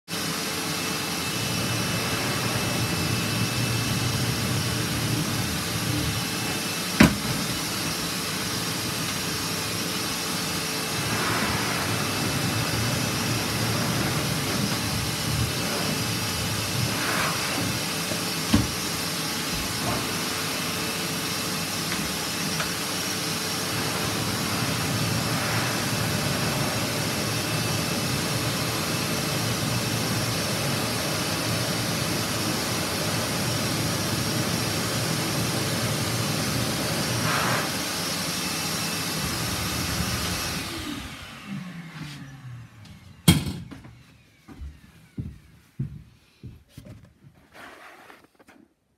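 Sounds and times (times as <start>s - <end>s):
vacuum cleaner blowing air: 0.1s - 46.5s.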